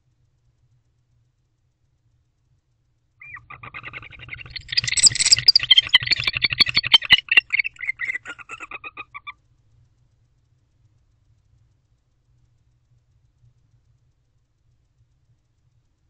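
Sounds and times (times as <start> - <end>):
owl chirping call: 3.2 - 9.3
sharp clicks: 3.4 - 8.8.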